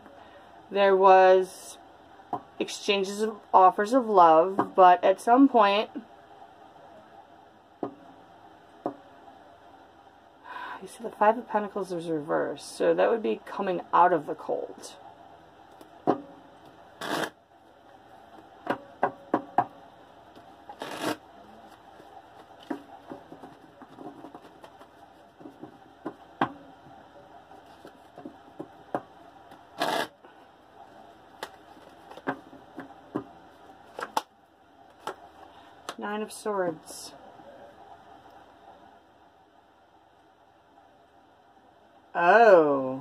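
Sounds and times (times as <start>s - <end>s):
cards clicking and tapping: 31.4s - 33.3s.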